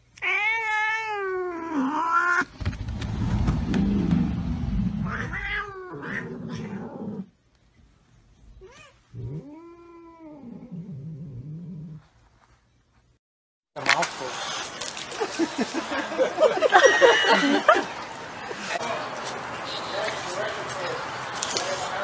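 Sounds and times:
cat yowling: 0.2 - 2.5, 5.0 - 7.2
rough rumbling noise: 2.5 - 5.7.

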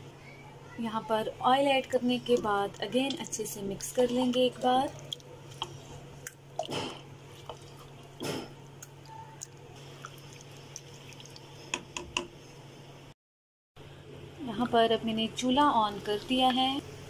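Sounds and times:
low steady hum: 0.0 - 13.2, 13.8 - 17.0
spatula stirring wet food: 1.5 - 12.0.

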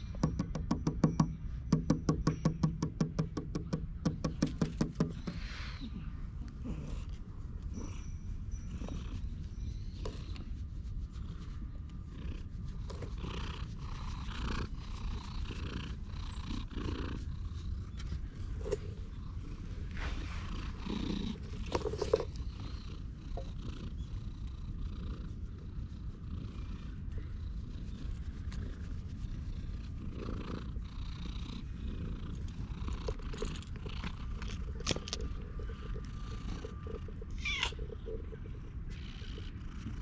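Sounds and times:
cat purring: 5.2 - 40.0
handling noises: 17.9 - 22.6, 32.5 - 38.4.

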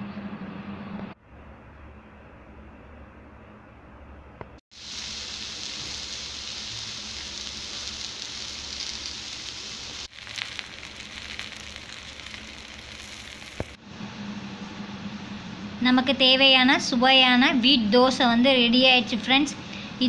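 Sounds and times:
batter sizzling on a griddle: 4.7 - 13.8.

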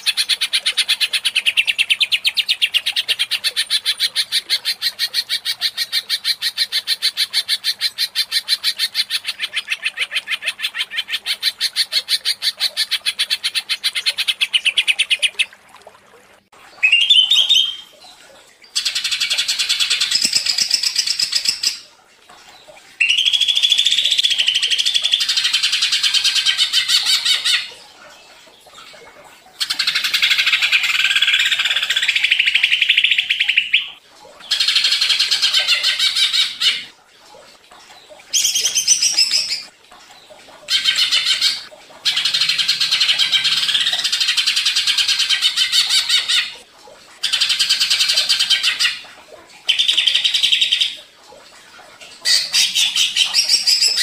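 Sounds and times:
bird singing chattering song: 16.8 - 17.9.

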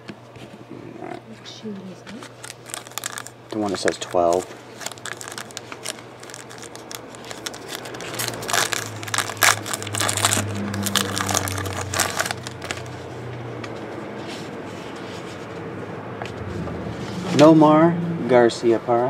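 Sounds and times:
wrapper crinkling: 2.2 - 13.0
low hum: 6.2 - 14.0, 15.5 - 18.9.

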